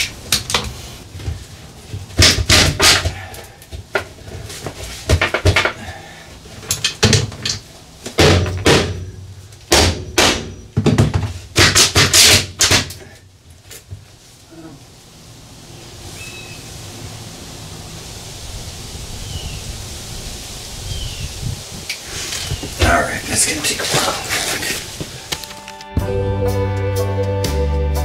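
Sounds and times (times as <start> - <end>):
tools and parts clattering: 6.6 - 7.7.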